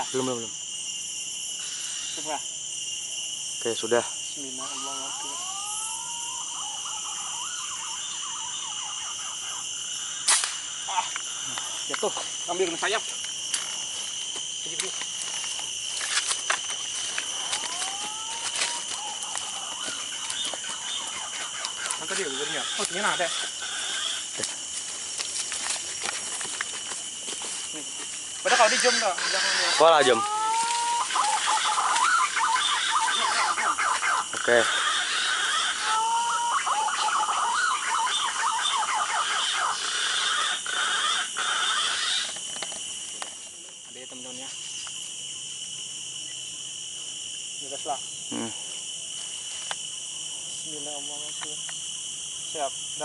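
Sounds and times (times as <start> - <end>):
insects droning: 0.0 - 53.0
rising whistle: 4.6 - 9.6
squeaky chirping calls: 4.6 - 11.5, 17.4 - 24.3, 28.5 - 42.3.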